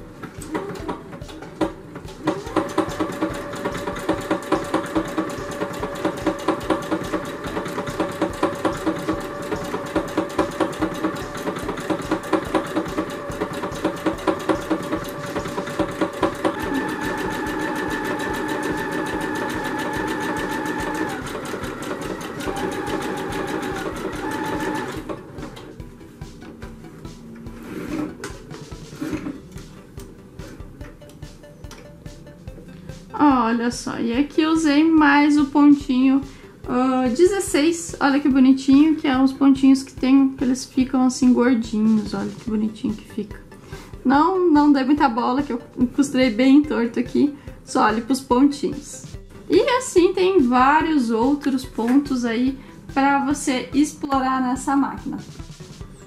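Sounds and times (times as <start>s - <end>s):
sewing machine stitching: 0.4s - 25.7s.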